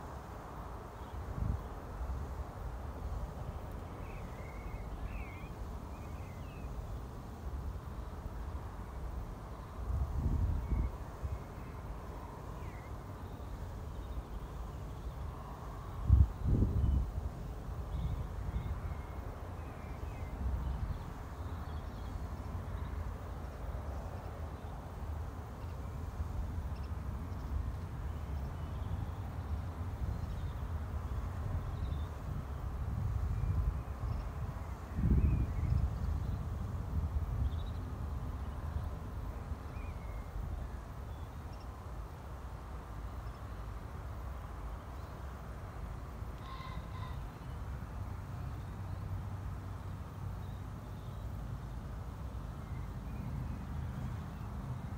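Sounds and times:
low rumble of wind: 0.0 - 54.9
wind on microphone: 9.9 - 11.5, 16.0 - 18.9, 31.3 - 40.7
bird call: 46.4 - 47.4
faint bird chirps: 46.4 - 47.6.

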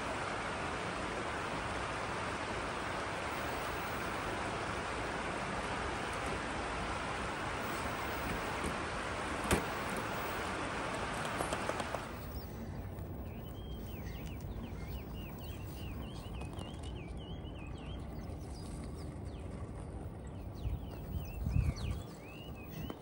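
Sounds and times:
stream water flowing: 0.0 - 16.1
small bird chirping: 12.0 - 23.0
wind on microphone: 12.1 - 23.0.

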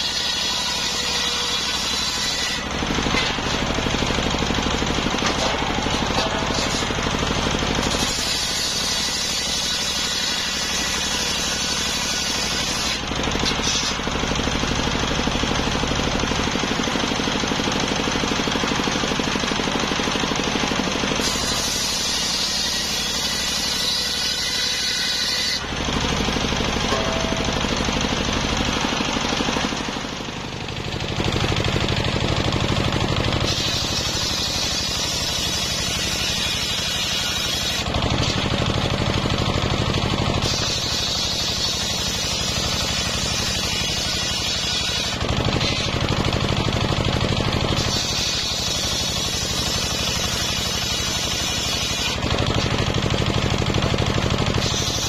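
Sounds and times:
circular saw machine running: 0.0 - 55.0
saw blade cutting wood: 0.0 - 55.0.

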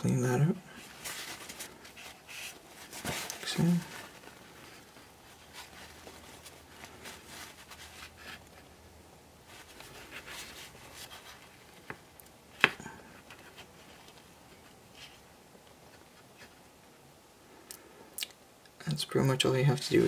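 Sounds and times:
paper towel rubbing plastic model: 0.4 - 8.8, 9.4 - 12.0.

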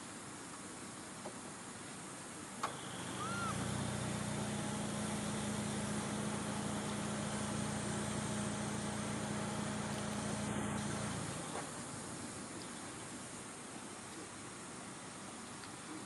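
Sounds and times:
engine running: 2.6 - 12.6
short high chirp: 3.2 - 3.6.

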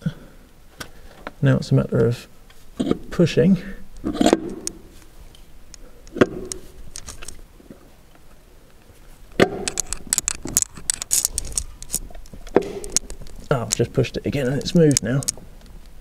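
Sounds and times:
metal rattles: 9.4 - 15.4
metal clunks and clicks: 12.1 - 13.9.

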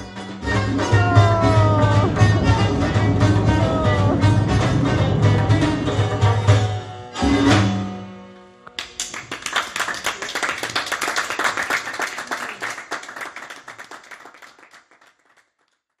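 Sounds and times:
music notes: 0.0 - 8.8
audience applause: 8.8 - 16.0.

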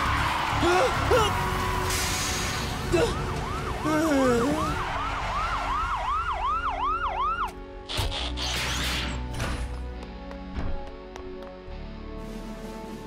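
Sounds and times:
cartoon police siren wailing: 2.9 - 7.6.

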